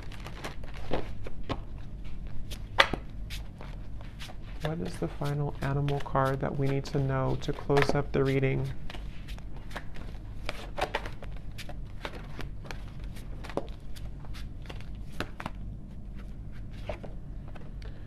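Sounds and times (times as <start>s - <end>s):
cards being shuffled: 0.0s - 17.8s
steady low hum: 0.0s - 18.0s.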